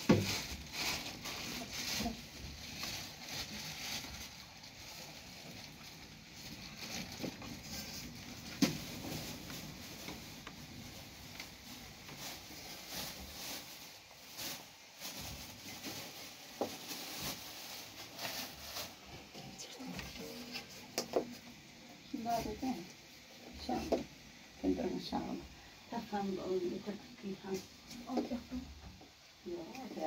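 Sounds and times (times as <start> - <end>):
cloth rustling: 0.0 - 21.5.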